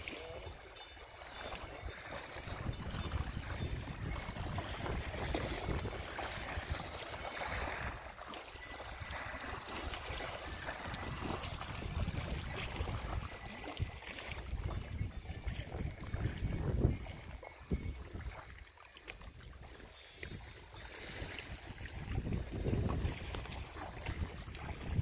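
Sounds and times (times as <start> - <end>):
river water lapping: 0.0 - 25.0
wind gusting across microphone: 2.5 - 6.9, 11.0 - 18.3, 21.6 - 25.0.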